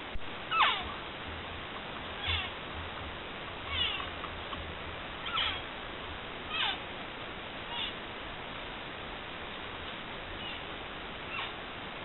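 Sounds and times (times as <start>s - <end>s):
elk mewing: 0.5s - 1.1s, 1.9s - 5.7s, 6.4s - 6.9s, 10.4s - 11.6s.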